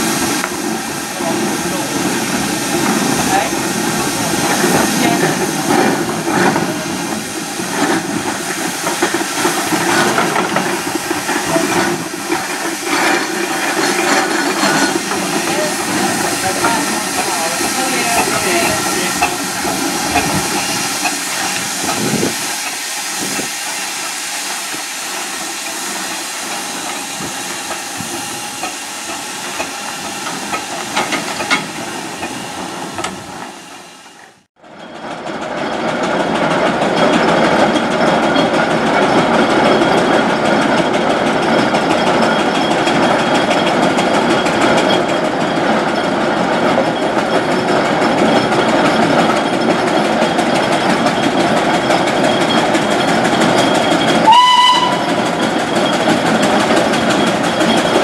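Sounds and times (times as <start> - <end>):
steam hissing: 0.0 - 34.5, 47.1 - 58.0
steam roller travelling on road: 0.0 - 58.0.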